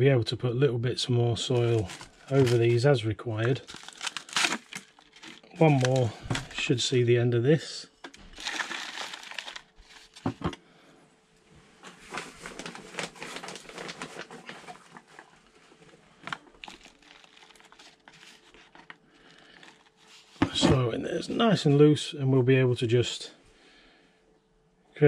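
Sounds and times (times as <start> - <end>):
soil pouring into plastic tray: 8.3 - 10.2.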